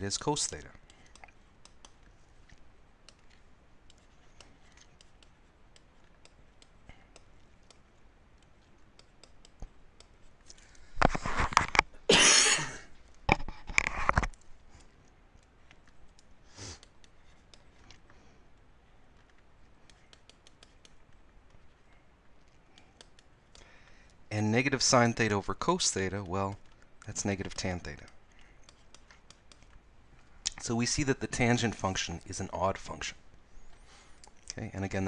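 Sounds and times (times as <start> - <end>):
man coughing: 12.1 - 12.9.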